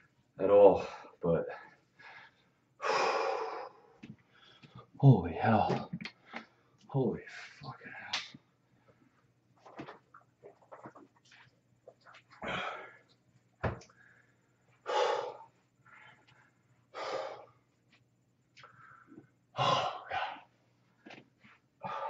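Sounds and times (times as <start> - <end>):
man breathing hard: 0.8 - 4.9, 12.4 - 13.2, 13.9 - 17.6, 21.8 - 22.0.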